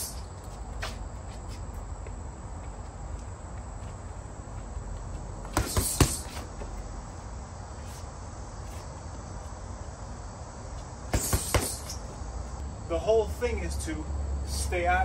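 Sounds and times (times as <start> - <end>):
background hiss: 0.0 - 15.0
punches on heavy bag: 5.5 - 6.5, 11.1 - 12.0.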